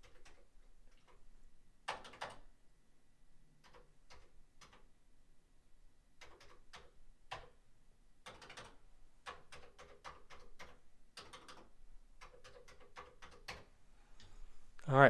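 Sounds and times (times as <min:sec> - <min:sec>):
keyboard keys clicking: 0:00.0 - 0:01.2, 0:01.9 - 0:02.5, 0:03.6 - 0:04.9, 0:06.2 - 0:07.6, 0:08.2 - 0:13.7.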